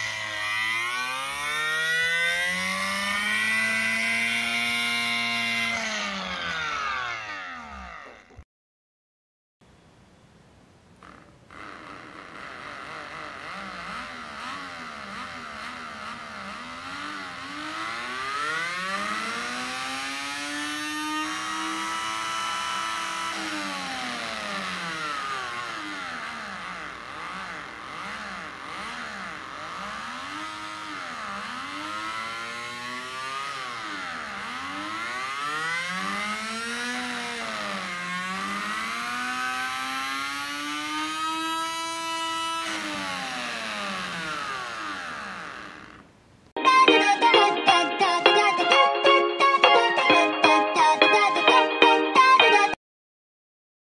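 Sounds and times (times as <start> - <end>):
small electric motor buzzing: 0.0 - 8.4, 11.0 - 46.1.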